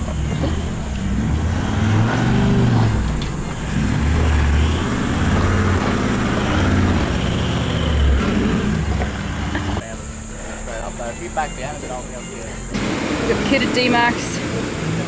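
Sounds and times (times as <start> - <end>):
engine revving in surges: 0.0 - 10.3, 12.6 - 15.0.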